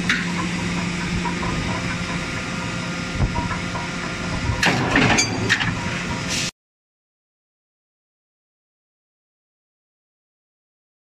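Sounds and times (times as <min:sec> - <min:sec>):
machinery humming: 0:00.0 - 0:06.5.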